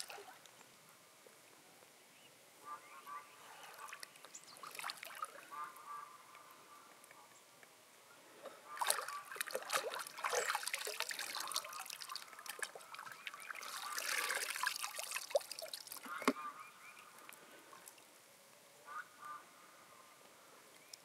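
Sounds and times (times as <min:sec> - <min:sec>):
water sloshing and trickling: 0:00.0 - 0:00.6, 0:03.5 - 0:05.7, 0:08.7 - 0:18.0.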